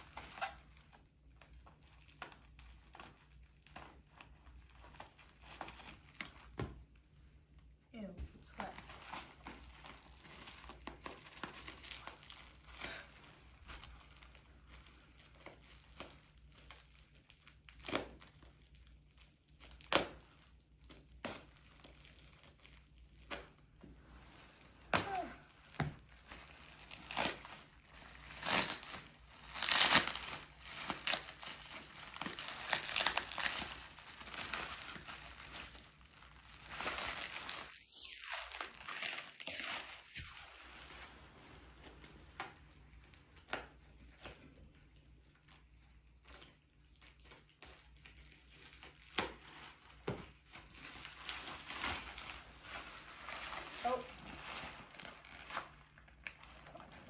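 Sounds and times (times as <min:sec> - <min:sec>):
bubble wrap crinkling: 0:00.0 - 0:57.0.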